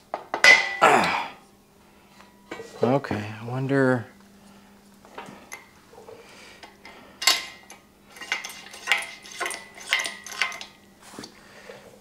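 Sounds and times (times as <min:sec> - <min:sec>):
metallic clanks of steel parts: 0:06.6 - 0:10.8.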